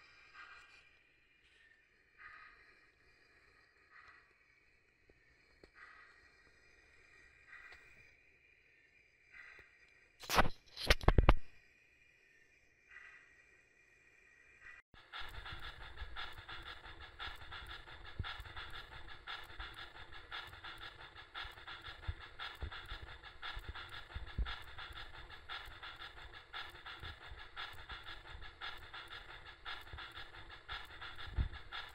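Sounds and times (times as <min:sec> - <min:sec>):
steam exhaust chuffing: 0:15.0 - 0:31.9.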